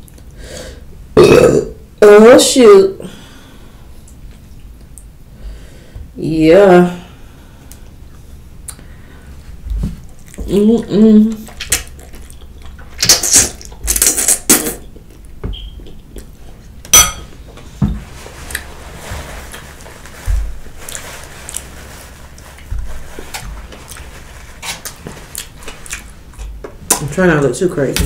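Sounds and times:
mouth and handling sounds: 0:07.7 - 0:28.0.

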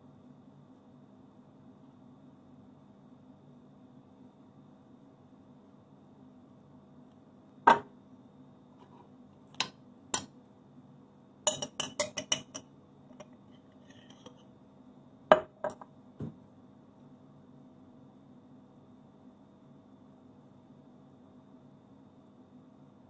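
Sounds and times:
faint steady hum: 0:00.0 - 0:23.0
cutlery clinking on plate: 0:11.5 - 0:14.4.

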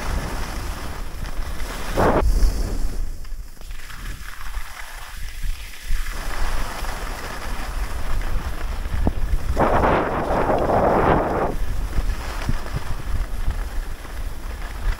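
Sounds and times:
skis sliding over snow: 0:00.0 - 0:14.9
wind buffeting microphone: 0:07.7 - 0:14.9
edges scraping snow: 0:08.7 - 0:13.0.

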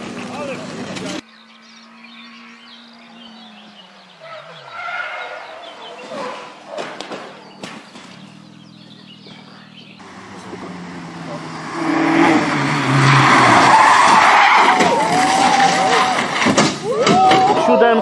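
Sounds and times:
rally car engine revving: 0:00.0 - 0:16.9
tyre noise: 0:04.0 - 0:18.0
car impact knocks: 0:16.2 - 0:17.5.

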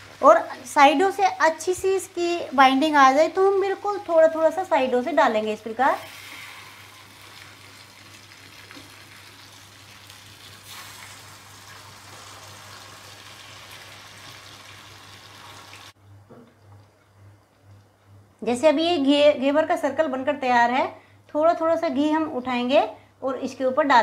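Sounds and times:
batter sizzling in hot oil: 0:00.0 - 0:16.0.

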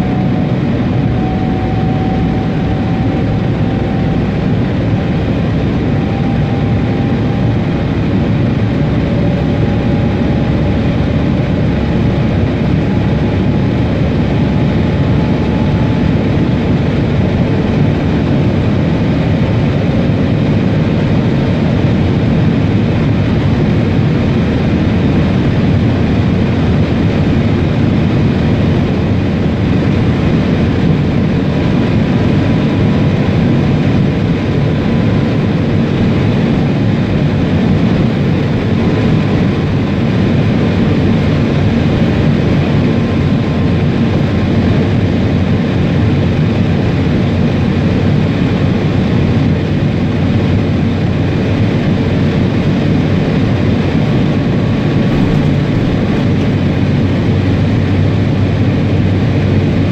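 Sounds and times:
maglev train rumble: 0:35.7 - 0:59.9.

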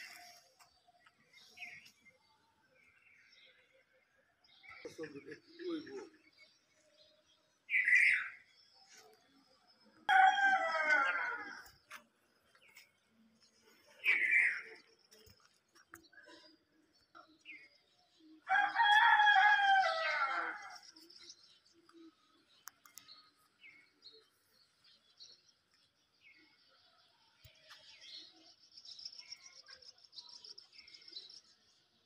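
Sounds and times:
rooster crowing: 0:10.1 - 0:11.7, 0:18.5 - 0:20.8
faint small-bird chirps: 0:22.4 - 0:31.9.

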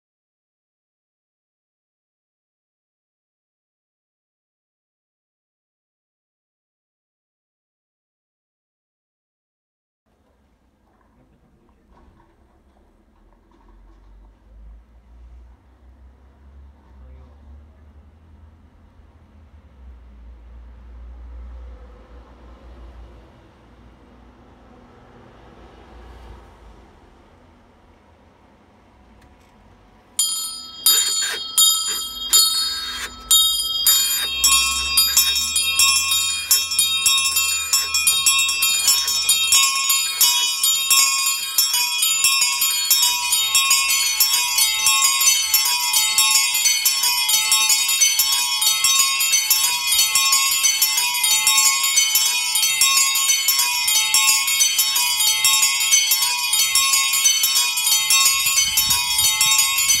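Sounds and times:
small bells ringing: 0:30.2 - 1:00.0.

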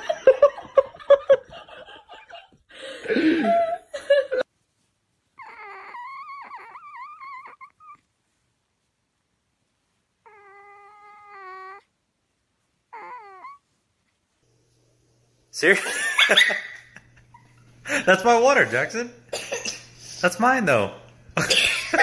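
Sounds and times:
kitten mewing: 0:05.4 - 0:08.0, 0:10.2 - 0:11.9, 0:12.9 - 0:13.6.

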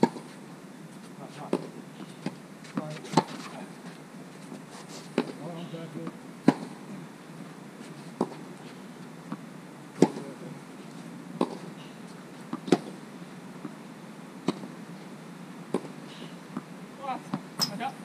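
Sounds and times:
tennis ball bouncing: 0:06.0 - 0:06.8, 0:08.2 - 0:08.5, 0:10.0 - 0:10.2, 0:11.4 - 0:11.7, 0:12.5 - 0:13.0, 0:14.4 - 0:14.7, 0:15.7 - 0:16.7.

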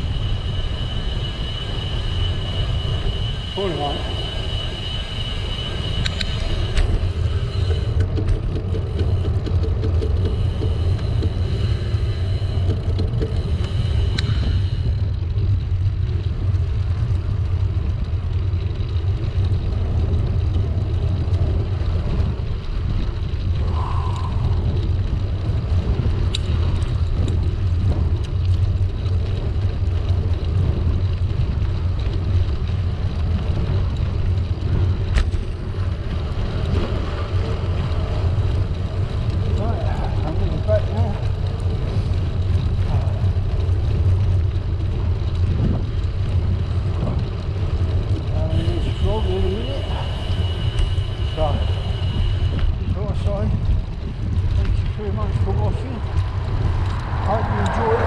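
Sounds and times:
thin high whine: 0:00.0 - 0:08.4, 0:48.4 - 0:53.3
air rushing over microphone: 0:00.0 - 0:58.0
tyres humming on asphalt: 0:00.0 - 0:58.0.

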